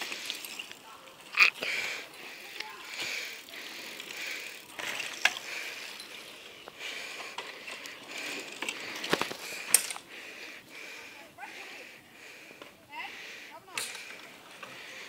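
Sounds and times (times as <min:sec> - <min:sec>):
bicycle freewheel ticking: 0:00.0 - 0:11.2.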